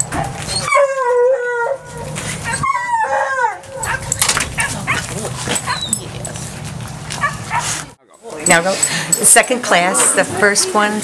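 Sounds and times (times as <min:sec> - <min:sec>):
dog howling: 0:00.1 - 0:06.2.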